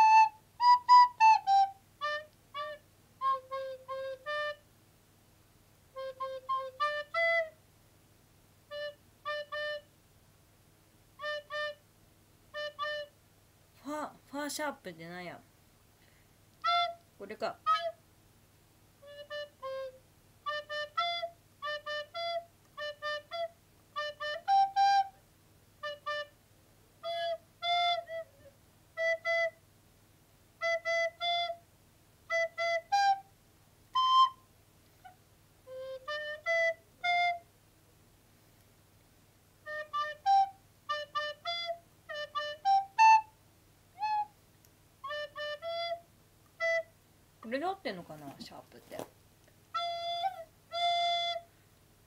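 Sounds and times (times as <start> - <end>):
recorder playing slow notes: 0.0 - 4.6, 5.9 - 7.6, 8.7 - 9.9, 11.2 - 11.8, 12.5 - 13.2, 16.6 - 18.0, 19.0 - 25.2, 25.8 - 26.4, 27.0 - 29.6, 30.6 - 31.6, 33.9 - 37.5, 39.6 - 43.3, 44.0 - 44.4, 45.0 - 46.9, 49.7 - 51.5.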